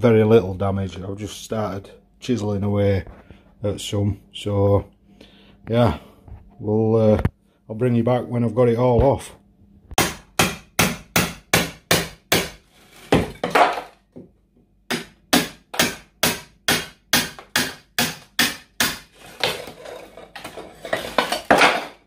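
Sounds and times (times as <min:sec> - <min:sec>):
hammer striking chisel: 0:10.0 - 0:13.8, 0:14.9 - 0:19.1
tiles crunching off wall: 0:12.8 - 0:14.3, 0:19.1 - 0:22.0.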